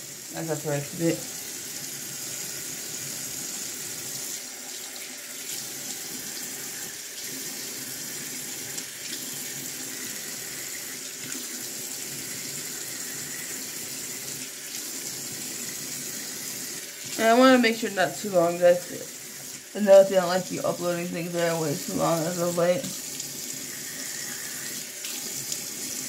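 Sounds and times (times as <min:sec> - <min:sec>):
tap water running into sink: 0:00.0 - 0:26.0.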